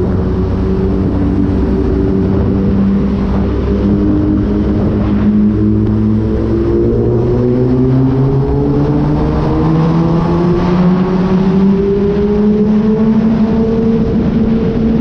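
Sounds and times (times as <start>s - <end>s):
motorcycle engine accelerating in tunnel: 0.0s - 15.0s.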